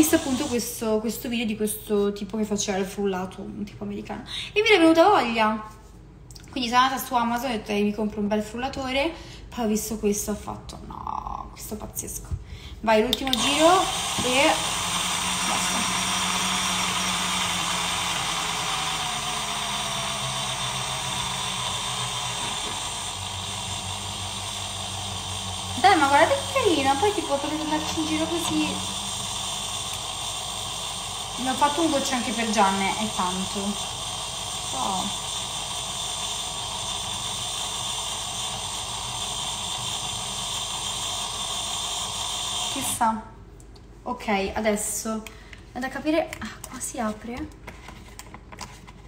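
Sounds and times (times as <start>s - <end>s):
blender motor whirring: 0.0s - 0.8s, 13.2s - 43.0s.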